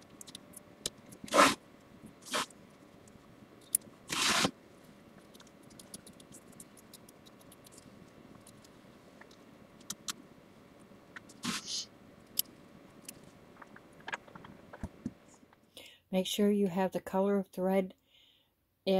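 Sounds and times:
scissors snipping fabric: 0:04.1 - 0:04.5.

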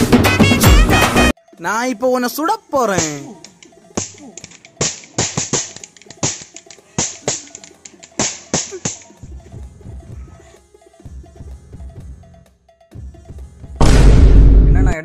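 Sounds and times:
toy cap gun cracks: 0:03.0 - 0:09.1
music with low drum beat: 0:08.2 - 0:10.4, 0:11.0 - 0:14.6.

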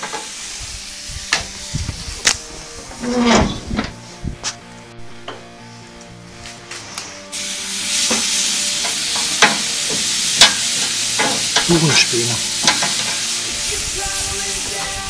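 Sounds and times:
wood chips hissing on charcoal: 0:00.0 - 0:04.6, 0:06.4 - 0:15.0
crackles and clicks: 0:00.0 - 0:07.2.

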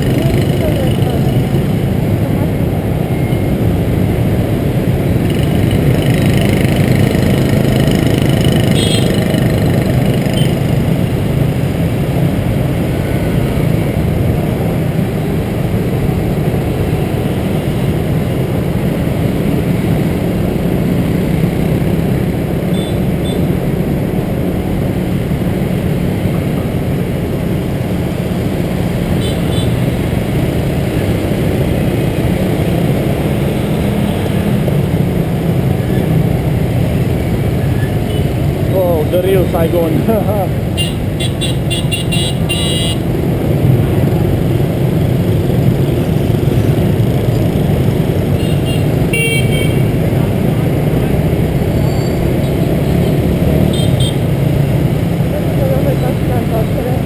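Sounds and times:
traffic engines and road noise: 0:00.0 - 0:57.0.

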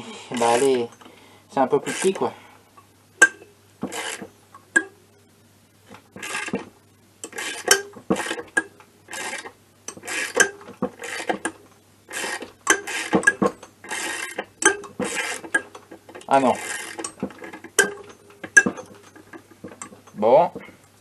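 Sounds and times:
tool rubbing inside metal case: 0:15.0 - 0:17.8
ratchet wrench clicking: 0:16.6 - 0:17.2.

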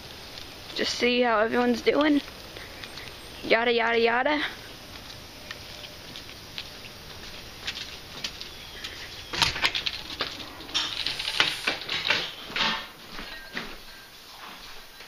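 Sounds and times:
door latches clicking and rattling: 0:09.3 - 0:12.8.

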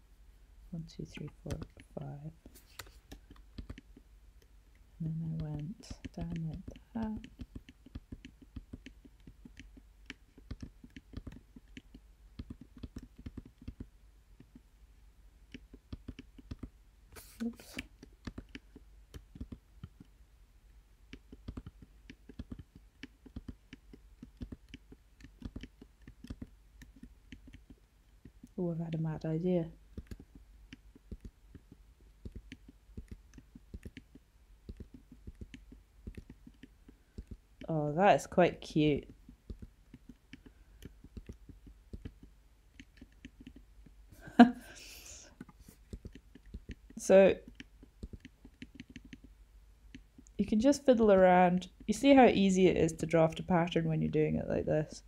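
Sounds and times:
mouse clicks: 0:01.2 - 0:04.5, 0:05.4 - 0:14.7, 0:15.5 - 0:20.1, 0:21.1 - 0:28.6, 0:29.9 - 0:37.7, 0:39.0 - 0:44.0, 0:45.0 - 0:50.4
keyboard keystrokes: 0:02.8 - 0:04.0, 0:05.4 - 0:14.6, 0:17.4 - 0:20.1, 0:21.1 - 0:28.6, 0:29.9 - 0:37.4, 0:39.0 - 0:43.6.

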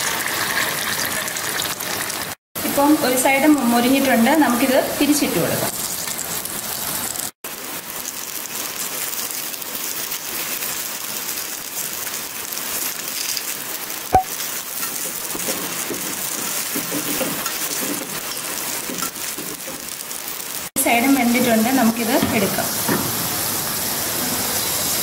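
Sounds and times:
oil sizzling in a pan: 0:00.0 - 0:25.0
rain hissing: 0:05.1 - 0:15.8, 0:19.8 - 0:25.0.

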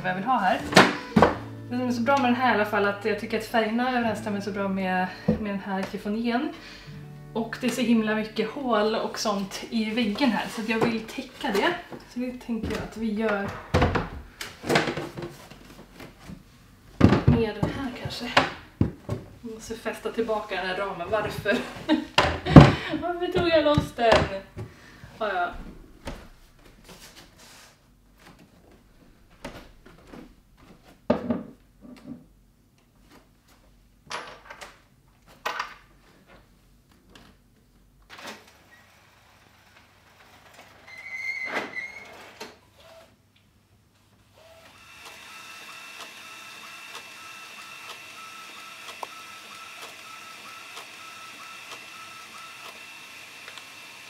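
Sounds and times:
objects knocking on wooden dresser: 0:17.0 - 0:19.3
inkjet printer running: 0:44.4 - 0:54.0.

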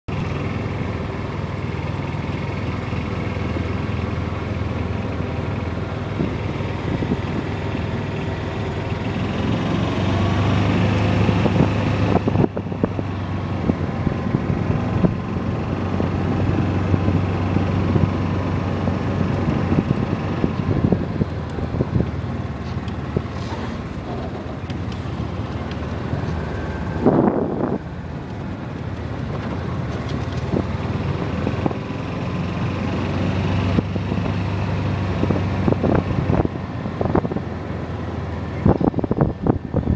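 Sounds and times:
golf cart motor hum: 0:00.1 - 0:39.9
wind buffeting microphone: 0:10.2 - 0:32.0, 0:33.7 - 0:37.6, 0:38.5 - 0:39.9.

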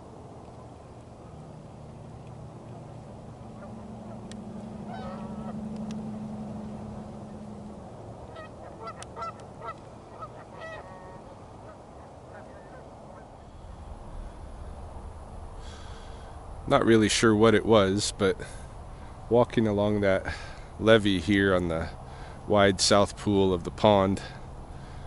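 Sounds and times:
low steady hum: 0:00.0 - 0:25.0
geese honking: 0:03.5 - 0:07.5, 0:08.2 - 0:13.5.

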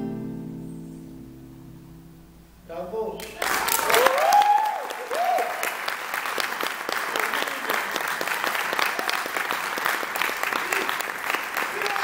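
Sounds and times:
audience applauding: 0:03.2 - 0:12.0
cheering whoops: 0:03.5 - 0:05.8, 0:10.6 - 0:12.0.

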